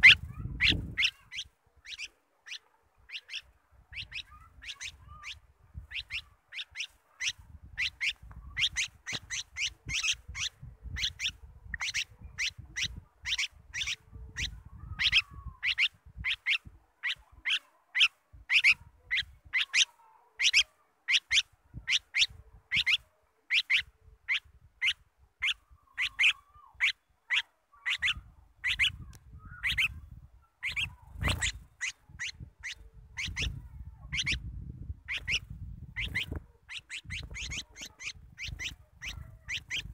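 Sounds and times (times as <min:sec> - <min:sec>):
bird chirping: 0:00.0 - 0:39.9.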